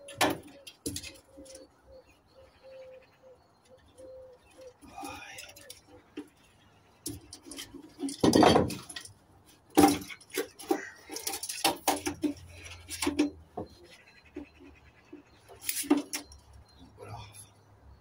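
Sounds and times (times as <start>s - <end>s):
metal and plastic parts clanking: 0.0s - 1.6s, 7.0s - 14.6s, 15.3s - 16.8s.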